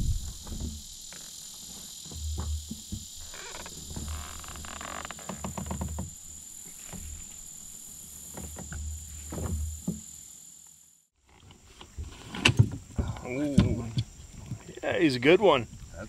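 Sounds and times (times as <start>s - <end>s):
frogs croaking: 0.0s - 11.4s
insects droning: 0.0s - 16.0s.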